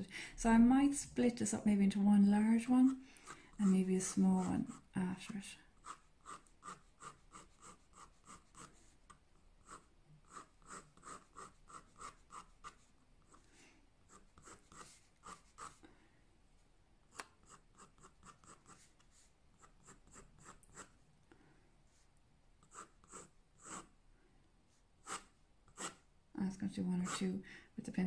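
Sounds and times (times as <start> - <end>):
pencil scratching on paper: 2.5 - 15.8, 17.1 - 21.0, 22.6 - 23.9, 25.0 - 26.0, 26.9 - 27.3.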